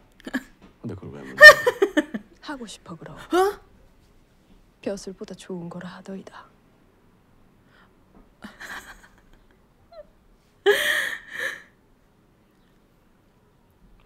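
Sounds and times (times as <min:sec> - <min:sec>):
woman laughing breathily: 0:08.4 - 0:11.8.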